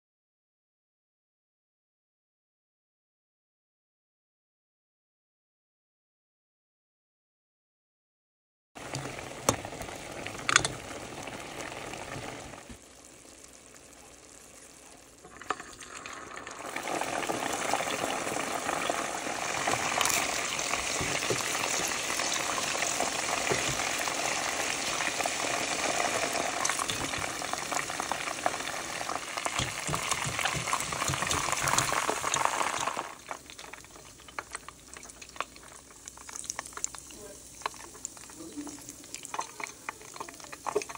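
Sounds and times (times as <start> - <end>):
chicken frying in hot oil: 8.8 - 40.9.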